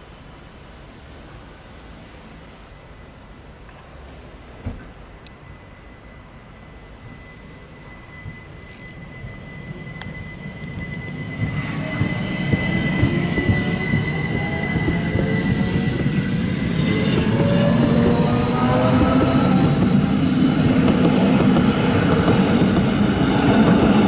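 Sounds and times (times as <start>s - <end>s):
wheels rumbling on rail: 0.0s - 24.0s
electric train motor whine: 5.3s - 24.0s.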